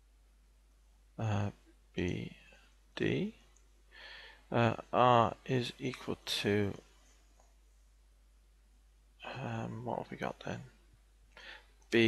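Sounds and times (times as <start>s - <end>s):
man speaking a word: 1.2s - 2.3s, 3.0s - 3.3s, 4.5s - 6.8s, 9.2s - 10.7s.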